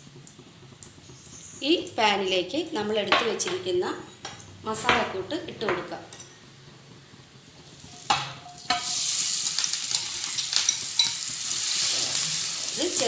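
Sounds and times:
food sizzling in hot oil: 0:07.5 - 0:13.0.

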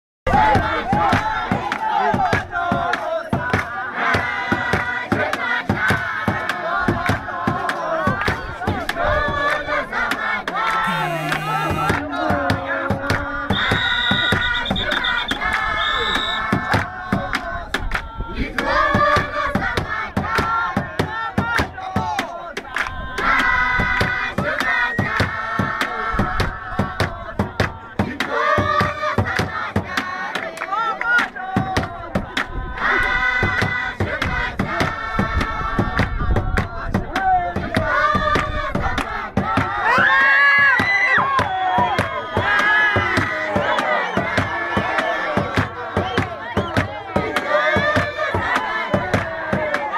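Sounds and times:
crowd singing and shouting: 0:00.3 - 0:49.9
hand-clapping: 0:01.0 - 0:13.3, 0:14.3 - 0:19.3, 0:20.3 - 0:32.6, 0:33.4 - 0:49.9
sharp drum beats: 0:10.8 - 0:15.0.

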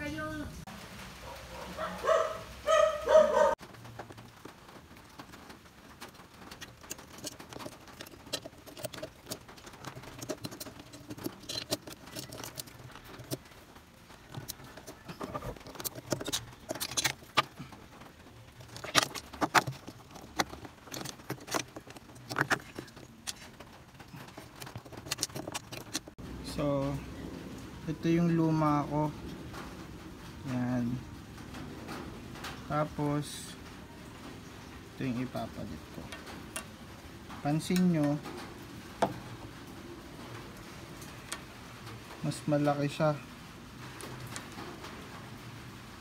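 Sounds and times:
small clicks and rattles: 0:03.6 - 0:26.2.

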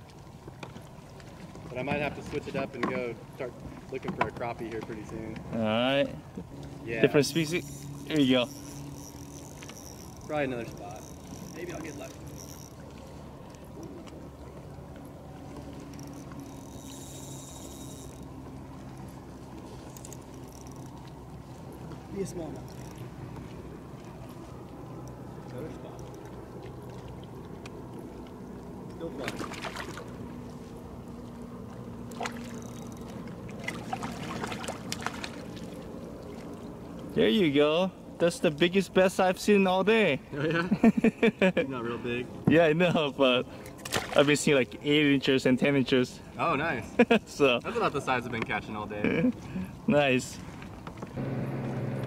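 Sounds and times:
faint constant hum: 0:00.0 - 0:52.0
fish splashing at water surface: 0:29.2 - 0:30.2, 0:32.0 - 0:36.8, 0:43.7 - 0:44.4.

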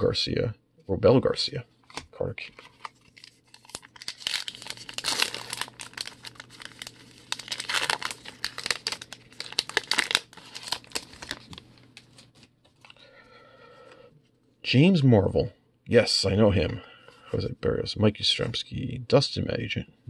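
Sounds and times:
wrapper crinkling and tearing: 0:01.9 - 0:13.0.

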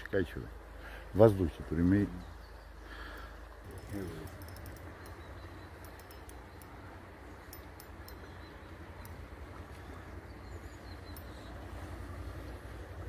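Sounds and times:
faint high ticks: 0:03.1 - 0:09.8, 0:11.0 - 0:11.5.

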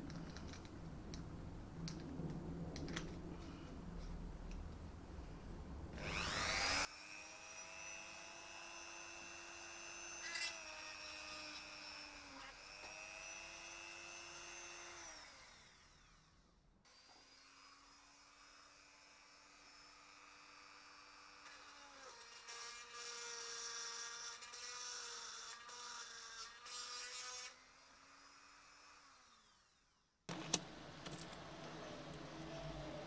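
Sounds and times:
rotary tool motor whine: 0:06.0 - 0:29.9.

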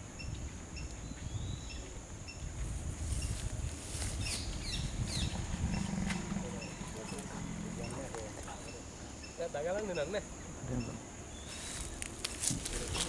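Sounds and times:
birds chirping: 0:00.0 - 0:13.0
insect drone: 0:00.0 - 0:13.0
low rumble: 0:04.4 - 0:08.6.

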